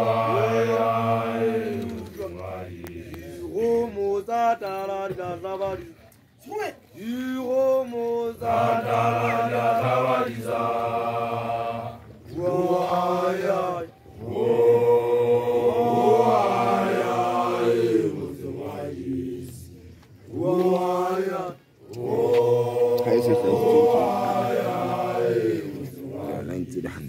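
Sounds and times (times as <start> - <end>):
group of voices chanting: 0.0 - 4.0, 8.3 - 19.7, 20.3 - 26.5.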